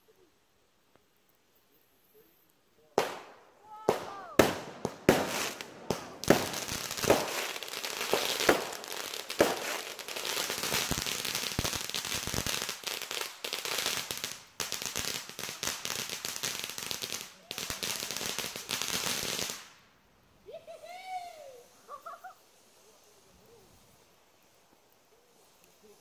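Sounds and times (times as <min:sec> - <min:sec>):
fireworks crackling pops: 0:02.1 - 0:26.0
fireworks bangs: 0:03.0 - 0:19.8.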